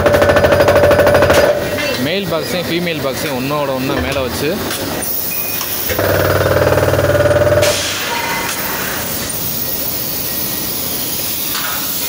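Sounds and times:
machine rough buzz: 0.0s - 1.6s, 5.9s - 7.8s
shop floor din: 3.2s - 9.7s.

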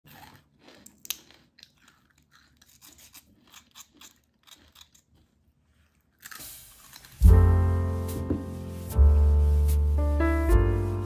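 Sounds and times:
potato sticks snapping and crunching: 0.1s - 5.4s, 6.1s - 7.2s.

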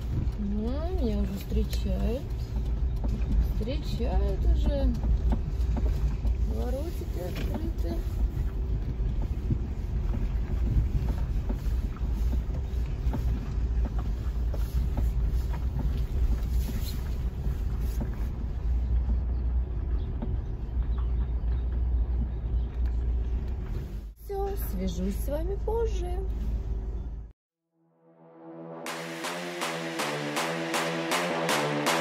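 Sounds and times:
car engine and road noise: 0.0s - 32.0s.

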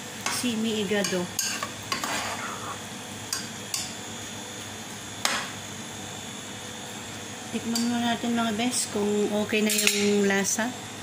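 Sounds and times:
metal ladle scraping a pan: 1.4s - 2.6s.

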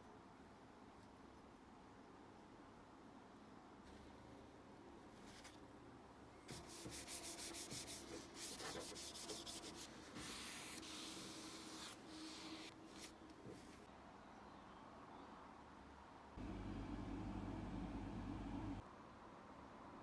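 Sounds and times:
paper towel rubbing on metal: 6.5s - 13.1s.

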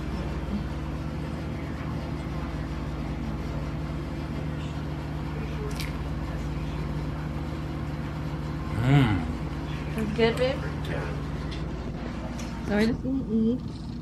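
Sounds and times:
low machine hum: 0.0s - 14.0s.

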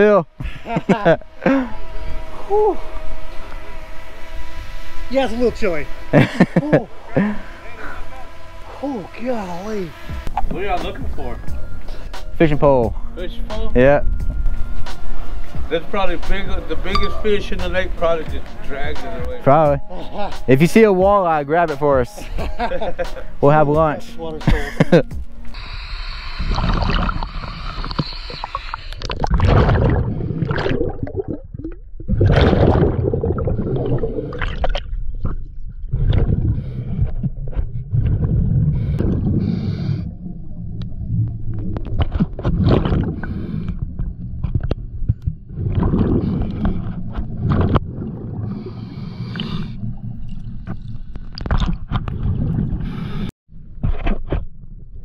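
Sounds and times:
diver breathing through regulator: 1.3s - 2.3s, 7.1s - 8.1s, 25.5s - 29.0s, 36.2s - 40.4s, 42.9s - 44.2s, 45.8s - 51.1s, 52.6s - 53.3s
bubbles gurgling underwater: 26.5s - 36.6s, 45.4s - 48.6s.

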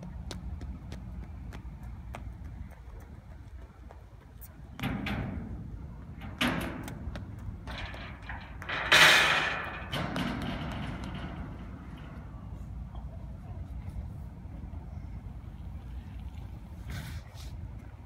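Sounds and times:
footsteps on metal ramps: 0.0s - 13.1s.

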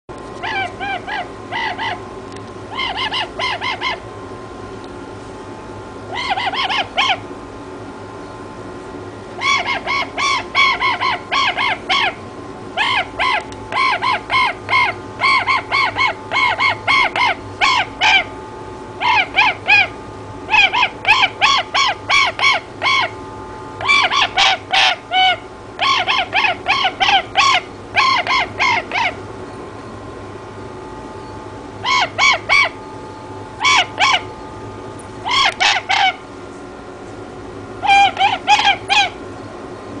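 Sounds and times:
toucan croaking calls: 0.4s - 2.1s, 2.7s - 4.1s, 6.1s - 7.3s, 9.4s - 12.2s, 12.8s - 18.4s, 19.0s - 23.2s, 23.8s - 29.3s, 31.2s - 33.0s, 33.6s - 34.6s, 35.2s - 36.3s, 37.8s - 39.2s.

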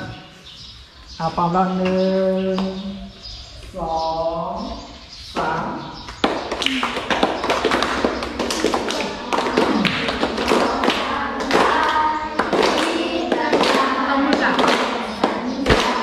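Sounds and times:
children singing in unison: 6.8s - 16.0s.

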